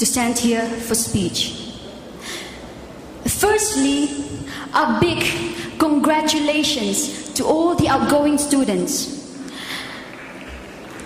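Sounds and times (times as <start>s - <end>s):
breath into microphone: 2.2s - 2.7s, 4.4s - 4.7s, 9.4s - 10.1s.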